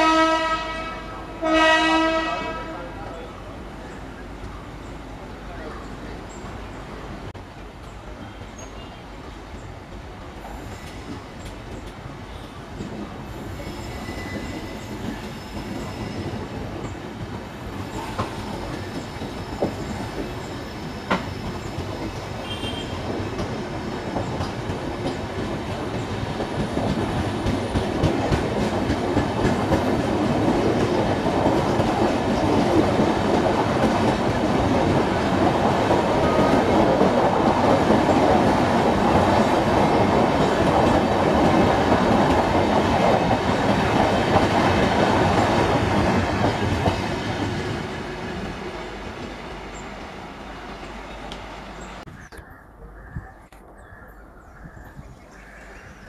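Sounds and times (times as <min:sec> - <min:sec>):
train wheels clattering on track: 0:10.4 - 0:50.4.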